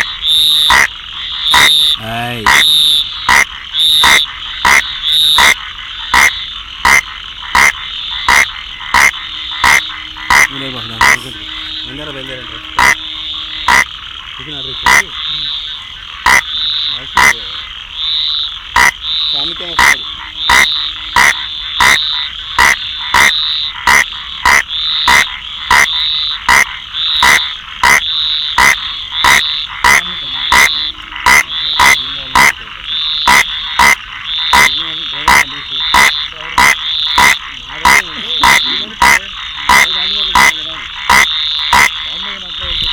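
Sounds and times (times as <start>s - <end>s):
frog calling: 0.0s - 42.9s
high hum: 7.4s - 41.0s.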